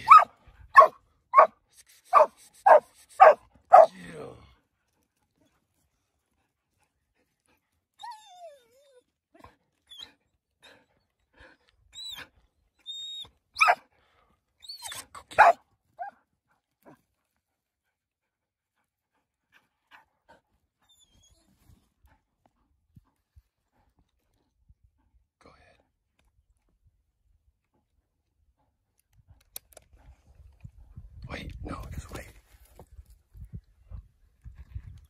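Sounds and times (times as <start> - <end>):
dogs yelping and barking: 0.0 - 1.5, 2.1 - 3.9, 12.0 - 13.9, 14.6 - 16.2.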